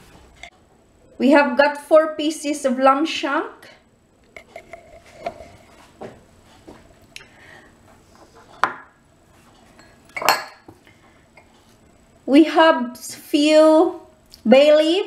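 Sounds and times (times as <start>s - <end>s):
glass bowls clinking on counter: 9.8s - 10.7s.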